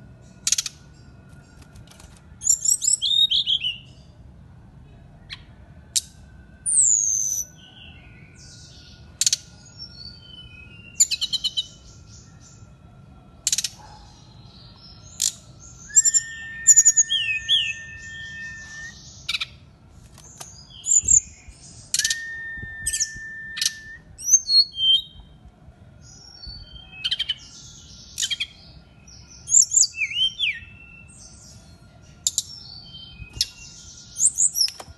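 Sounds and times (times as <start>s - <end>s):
bird singing chirps and trills: 0.0s - 4.4s, 5.1s - 34.9s
flute-like bird whistles: 15.8s - 19.1s, 21.8s - 25.2s.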